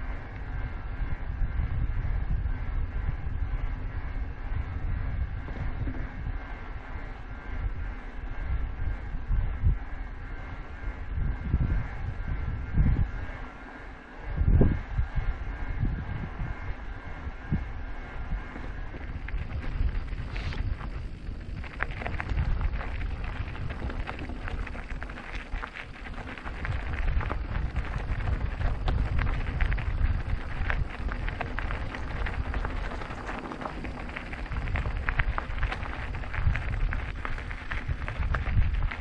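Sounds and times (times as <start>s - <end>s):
wind rumble on microphone: 0.0s - 39.0s
tyres crackling on rough surface: 17.8s - 39.0s.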